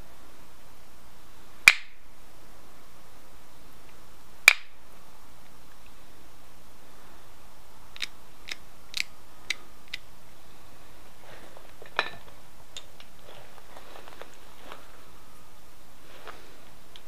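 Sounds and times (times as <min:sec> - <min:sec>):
antler tool clicking on stone: 0:04.5 - 0:04.7, 0:08.0 - 0:10.1.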